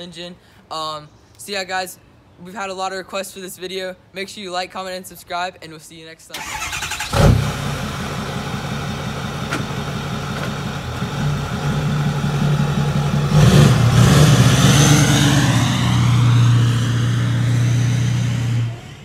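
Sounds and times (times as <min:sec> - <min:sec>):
diesel truck engine: 0:06.4 - 0:19.0.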